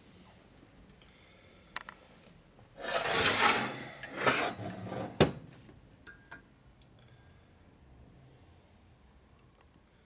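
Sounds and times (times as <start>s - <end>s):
metal scraping on metal: 2.8s - 5.2s.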